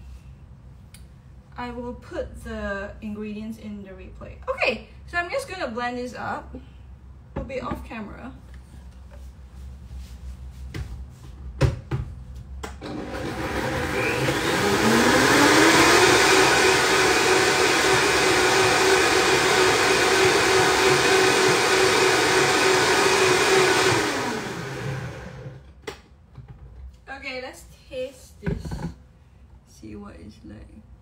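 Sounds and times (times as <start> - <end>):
blender motor running: 12.8 - 25.6.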